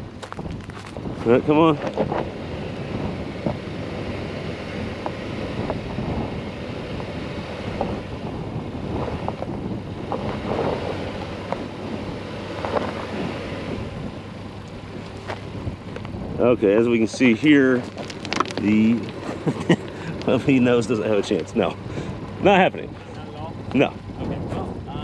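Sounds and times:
car engine under load: 0.0s - 25.0s
wind buffeting microphone: 0.0s - 25.0s
tyres scrabbling on gravel: 0.1s - 2.3s, 12.4s - 13.4s, 14.7s - 22.7s
stones clicking: 17.4s - 20.4s.

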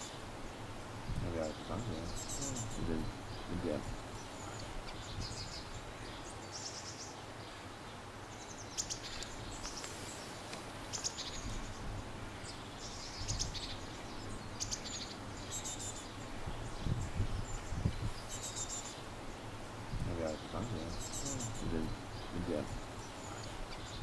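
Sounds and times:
low background noise: 0.0s - 24.0s
songbird chirping: 0.0s - 24.0s.

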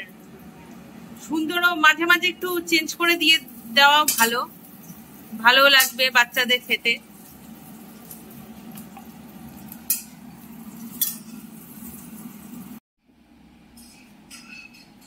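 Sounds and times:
cutlery clinks: 10.9s - 11.4s, 13.8s - 15.0s.

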